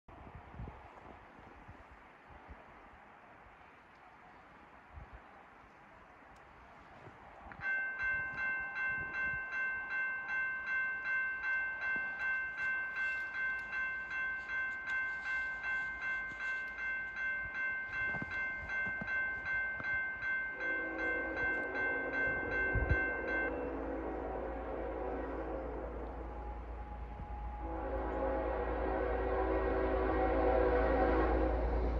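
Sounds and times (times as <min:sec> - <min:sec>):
railroad crossing bell ringing: 0:07.5 - 0:31.9
train horn chord: 0:20.6 - 0:31.9.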